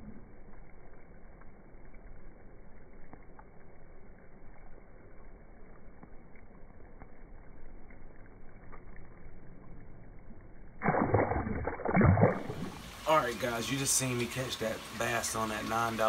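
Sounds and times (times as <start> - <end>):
faint light ticks: 0.0 - 9.3
outdoor background rumble: 0.0 - 16.0.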